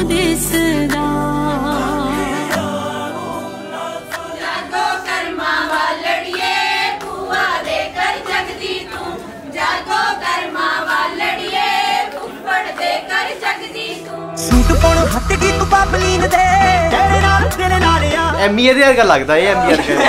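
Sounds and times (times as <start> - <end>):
women singing together: 0.0 - 14.5.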